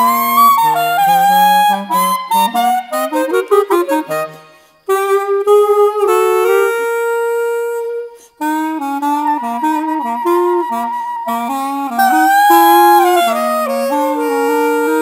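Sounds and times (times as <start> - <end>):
clarinet playing blues melody: 0.0 - 15.0
quick breath: 4.3 - 4.9.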